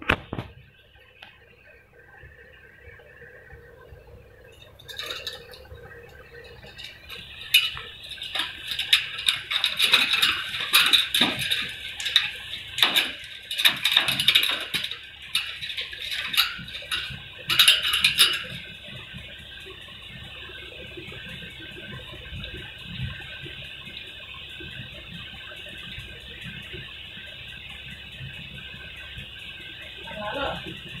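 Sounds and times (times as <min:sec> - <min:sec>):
wire cage clinking and rattling: 0:04.5 - 0:19.0.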